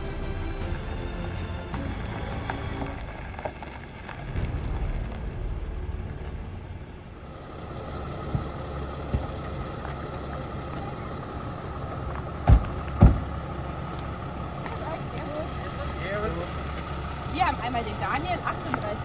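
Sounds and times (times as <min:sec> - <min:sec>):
van engine idling: 0:00.0 - 0:19.0
loud thump: 0:04.2 - 0:07.2, 0:12.4 - 0:13.3.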